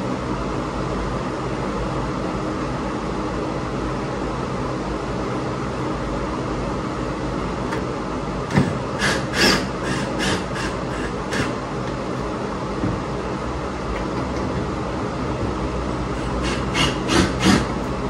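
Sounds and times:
fan humming: 0:00.0 - 0:18.0
cordless drill driving screws: 0:08.5 - 0:11.5, 0:16.4 - 0:17.7.

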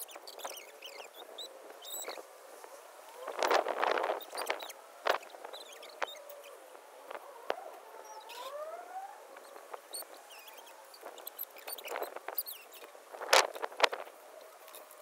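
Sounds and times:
grass rustling and tearing: 0:02.1 - 0:07.8, 0:09.5 - 0:15.0
faint rising tone: 0:04.2 - 0:11.8.

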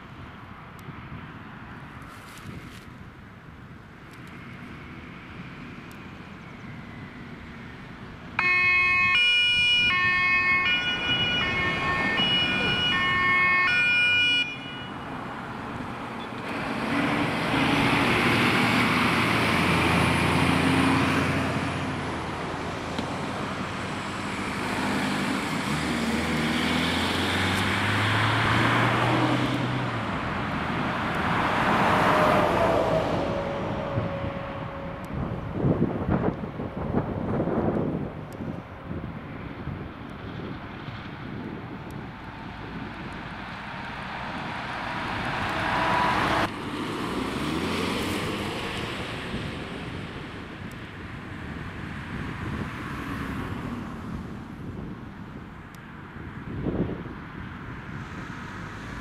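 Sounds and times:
fire engines accelerating past: 0:03.4 - 0:59.0
two-tone siren: 0:08.4 - 0:15.2, 0:32.1 - 0:35.3.

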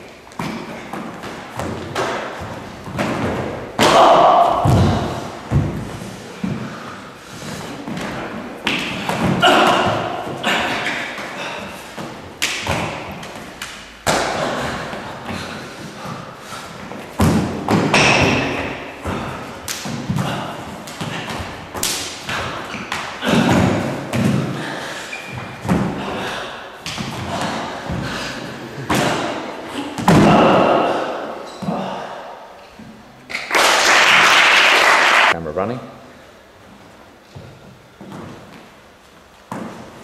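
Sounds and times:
feet stamping: 0:00.0 - 0:31.0, 0:36.7 - 0:40.0
bodies hitting floor: 0:00.3 - 0:32.0
blows landing on bodies: 0:00.3 - 0:32.1.

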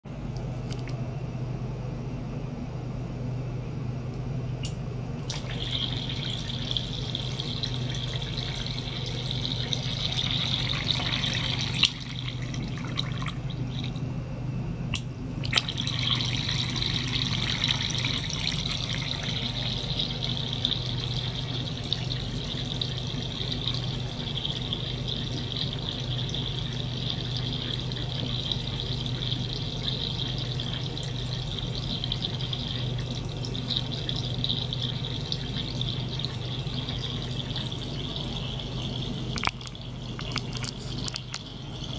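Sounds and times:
low pump hum: 0:00.1 - 0:41.9
water splashing into glass bowl: 0:35.4 - 0:41.9.

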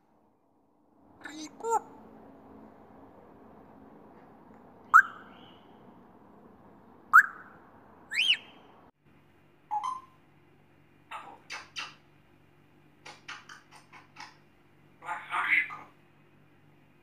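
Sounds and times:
parrot whistling: 0:04.9 - 0:05.4, 0:07.1 - 0:08.6, 0:09.7 - 0:10.1.

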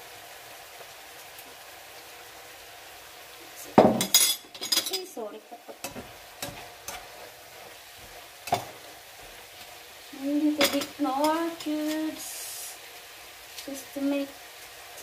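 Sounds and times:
food sizzling in oil: 0:00.0 - 0:15.0
spatula scraping frying pan: 0:05.7 - 0:09.7.

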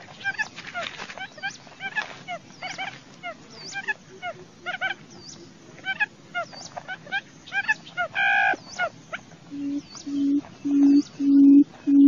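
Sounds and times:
quail chirping: 0:00.0 - 0:12.0
low humming note: 0:09.5 - 0:12.0.

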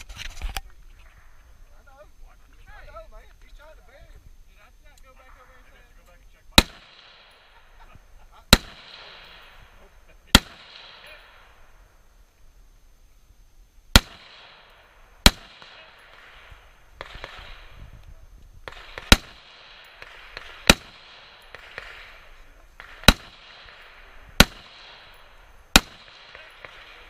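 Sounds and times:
rifle shots: 0:06.5 - 0:11.8, 0:13.9 - 0:17.9, 0:18.6 - 0:27.0.

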